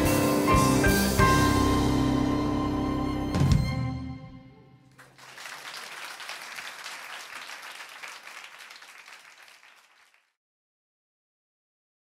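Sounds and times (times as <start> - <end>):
audience applauding: 5.0 - 10.3.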